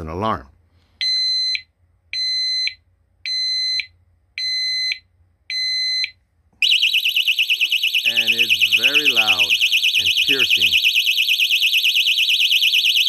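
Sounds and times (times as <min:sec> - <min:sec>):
shrill electronic beeps: 0:06.6 - 0:13.0.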